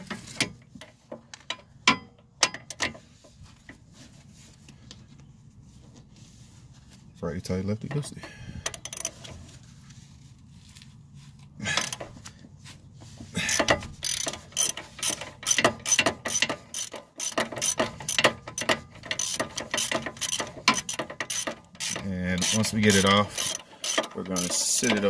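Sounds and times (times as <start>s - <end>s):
socket ratchet clicking: 8.7s - 9.2s, 13.5s - 25.0s.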